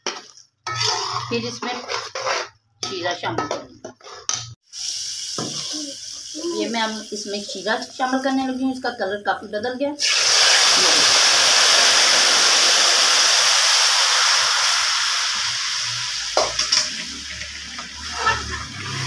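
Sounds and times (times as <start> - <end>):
syrup sizzling in hot pan: 4.6 - 7.4, 10.0 - 19.0.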